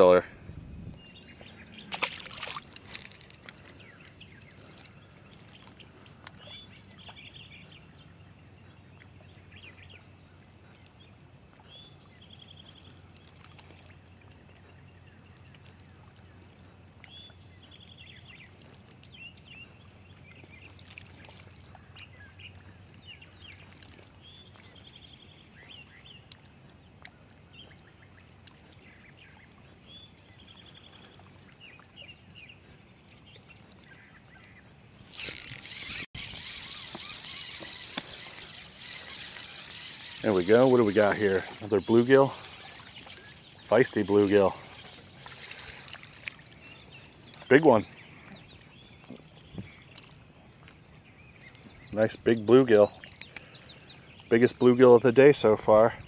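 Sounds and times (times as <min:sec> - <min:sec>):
distant birds chirping: 0:00.0 - 0:56.0
fish splashing into water: 0:01.9 - 0:03.5.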